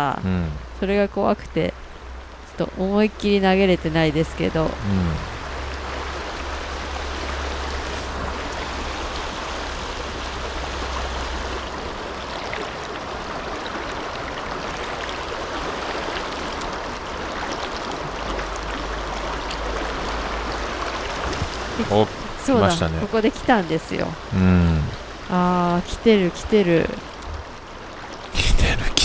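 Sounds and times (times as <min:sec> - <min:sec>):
stream rushing over rocks: 0:04.6 - 0:25.5
low rumble: 0:27.1 - 0:27.7.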